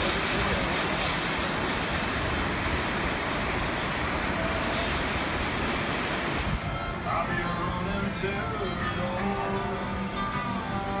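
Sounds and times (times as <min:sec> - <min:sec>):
creek rushing: 0:00.0 - 0:07.8
steam locomotive running: 0:00.0 - 0:11.0.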